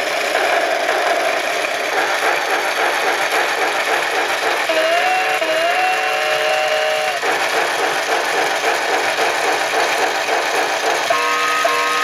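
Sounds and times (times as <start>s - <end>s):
steam engine chuffing: 0.0s - 12.0s
recorded steam whistle: 4.7s - 7.2s, 11.1s - 12.0s.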